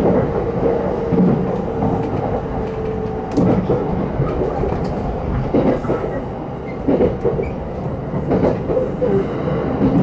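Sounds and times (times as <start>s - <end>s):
train wheels rumbling on rail: 0.0s - 10.0s.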